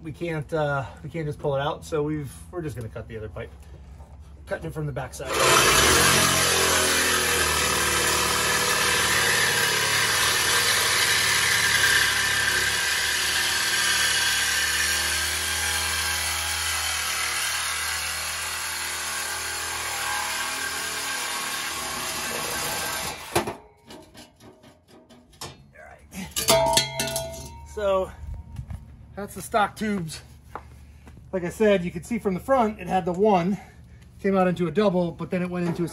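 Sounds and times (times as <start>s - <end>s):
reciprocating saw cutting metal pipe: 5.3s - 25.4s.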